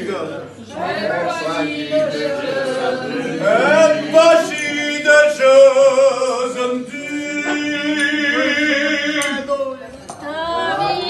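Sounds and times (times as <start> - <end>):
man singing: 3.4 - 9.9.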